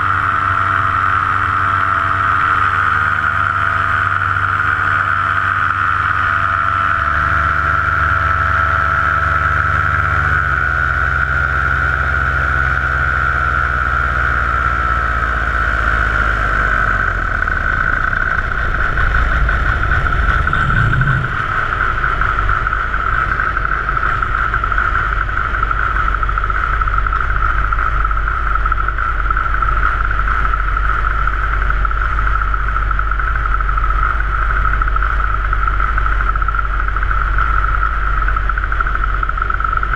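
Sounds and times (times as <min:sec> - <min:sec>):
paramotor engine and propeller: 0:00.0 - 0:39.9
wind rushing: 0:18.4 - 0:22.7.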